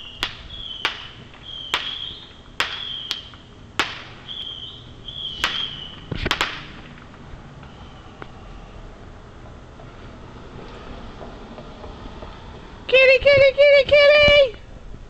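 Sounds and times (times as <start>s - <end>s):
fireworks bangs: 0.0s - 8.4s.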